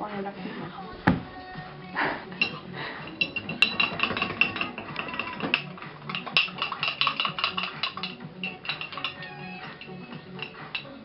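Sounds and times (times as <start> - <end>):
cutlery clinking against a dish: 2.4 - 11.0.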